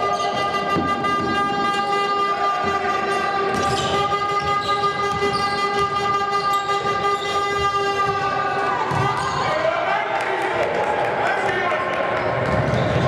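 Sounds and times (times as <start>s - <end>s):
steady horn-like tone: 0.2s - 8.0s
basketball thuds: 7.6s - 9.4s.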